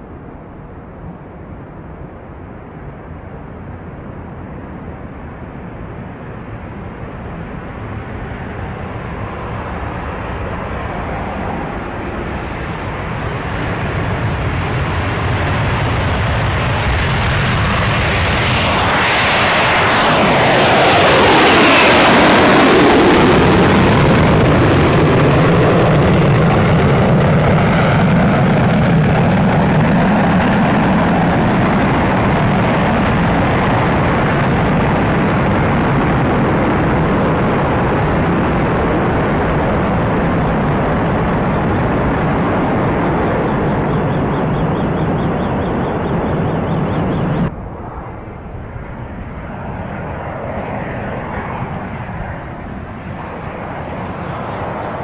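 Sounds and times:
jet engines roaring on takeoff: 0.0 - 55.0
jet whine dropping in pitch: 16.0 - 55.0.

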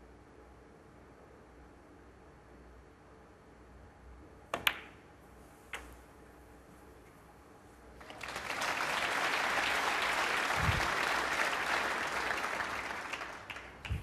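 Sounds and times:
audience applauding: 8.0 - 14.0.

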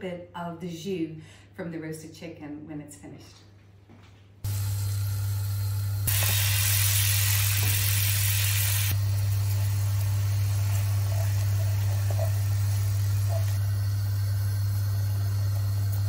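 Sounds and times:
butter sizzling in a pan: 5.3 - 16.0.

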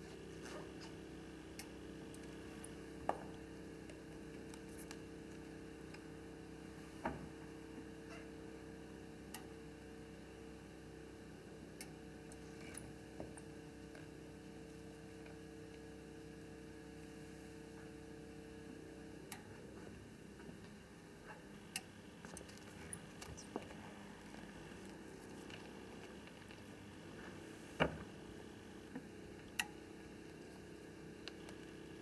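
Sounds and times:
faint steady hum: 0.0 - 32.0.

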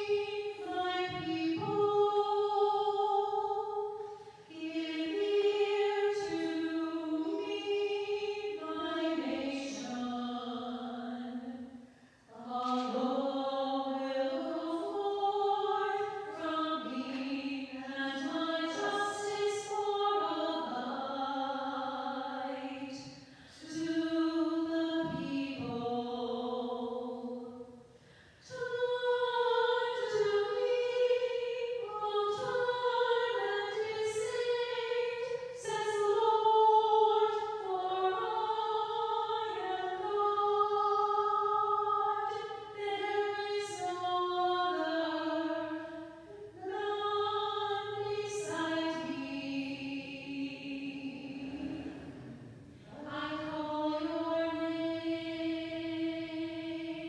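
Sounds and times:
church choir singing a hymn: 0.0 - 27.8, 28.4 - 57.0.

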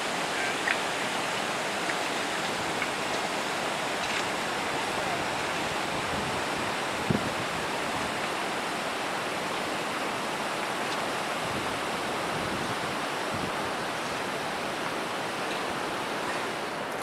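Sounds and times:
fast-flowing water rushing: 0.0 - 17.0.

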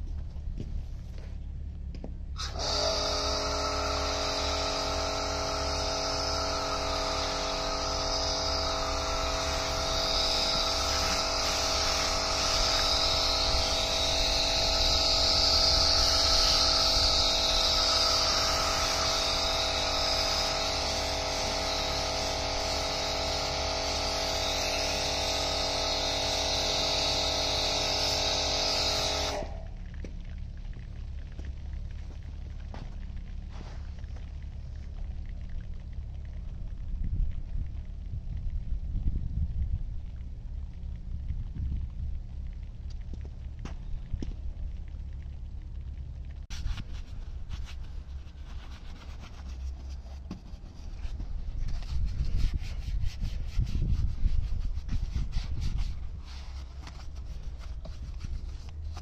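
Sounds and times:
foam spraying hiss: 2.4 - 29.7
pressure washer whine: 2.4 - 30.2, 46.5 - 59.0.

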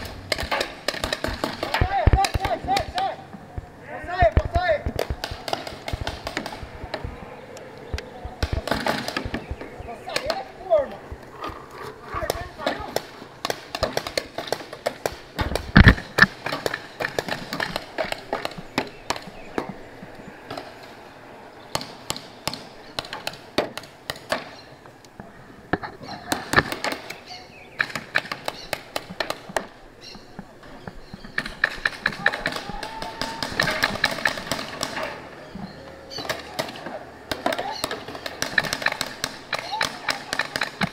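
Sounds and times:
paintball markers firing: 0.0 - 3.2, 4.3 - 10.5, 12.2 - 19.7, 26.2 - 30.4, 31.0 - 35.2, 36.1 - 40.9.

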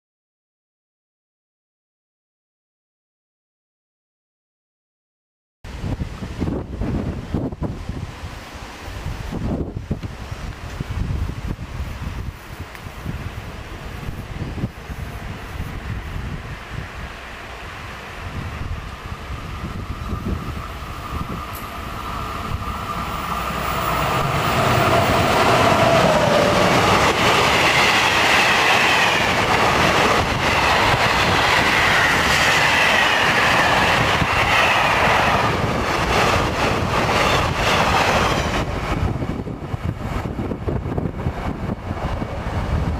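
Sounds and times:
locomotive passing with falling tone: 12.6 - 42.9
wheels clickety-clack: 24.4 - 42.8.

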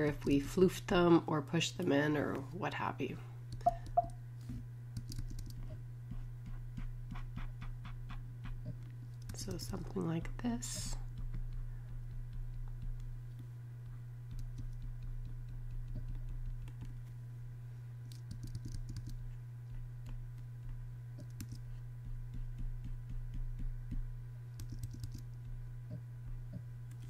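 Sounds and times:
steady low hum: 0.0 - 27.0
computer clicks: 3.6 - 4.2.

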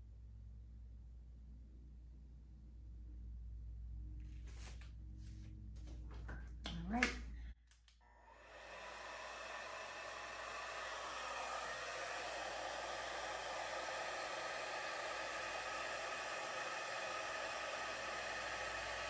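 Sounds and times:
hair dryer running: 7.7 - 19.0.

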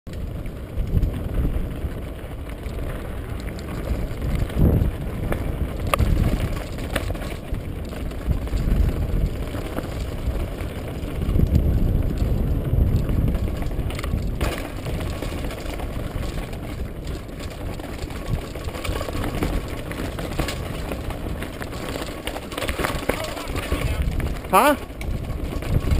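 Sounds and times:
mountain bike rattling over rocks: 0.1 - 25.9
wheels knocking on rocks: 0.1 - 25.9
wind rumbling on microphone: 0.1 - 25.9.

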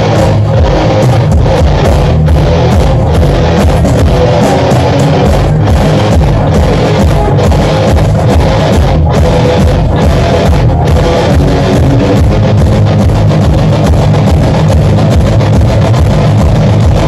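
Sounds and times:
rock band playing live: 0.0 - 17.0.

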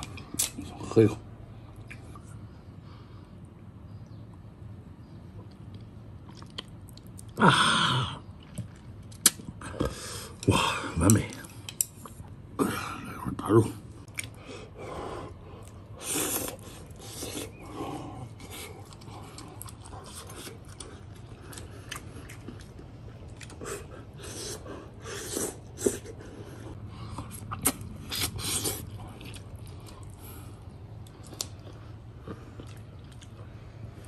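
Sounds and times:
person chewing meat off a bone: 15.3 - 34.0.

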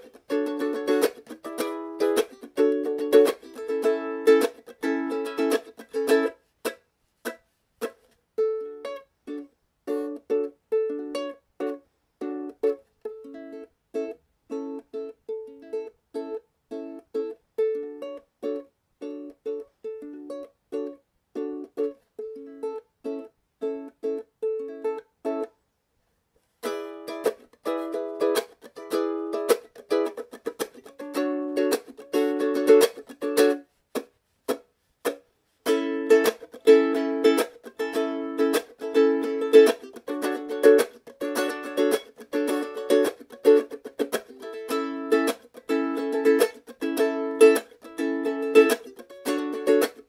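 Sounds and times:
plucked strings music: 0.0 - 25.6, 26.6 - 50.0.

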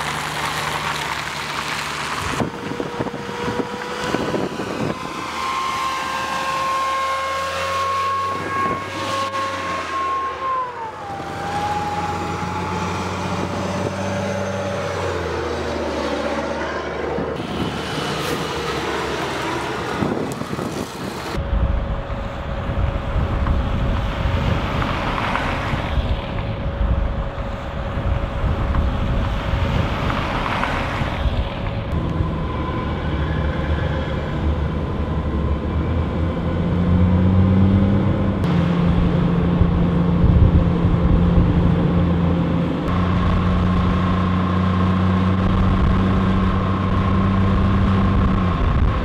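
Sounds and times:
diesel engine drone: 0.0 - 49.0
engine whine: 0.0 - 49.0
wind buffeting microphone: 2.0 - 6.6, 17.2 - 33.0, 38.4 - 49.0.

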